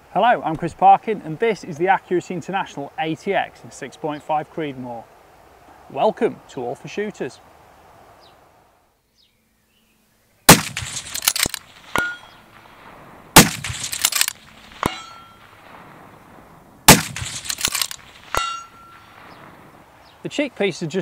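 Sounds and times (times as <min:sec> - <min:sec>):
suppressed rifle shots echoing: 0:10.5 - 0:16.0, 0:16.9 - 0:19.9
bullet ringing on steel target: 0:11.9 - 0:12.4, 0:14.8 - 0:15.5, 0:18.3 - 0:19.2.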